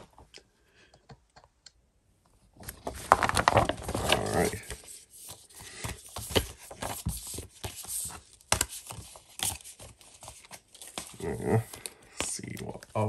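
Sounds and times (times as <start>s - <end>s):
paper rustling: 2.6s - 13.0s.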